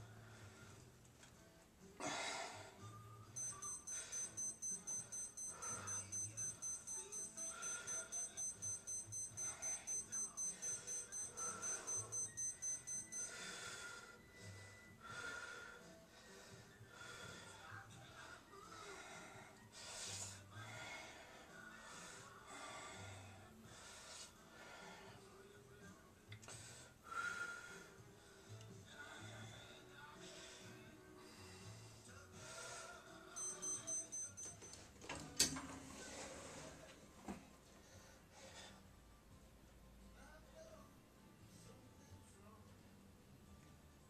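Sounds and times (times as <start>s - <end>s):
high electronic beeping: 3.4s - 13.3s, 33.4s - 34.6s
man breathing heavily: 7.2s - 8.6s, 13.2s - 25.4s, 26.4s - 33.0s.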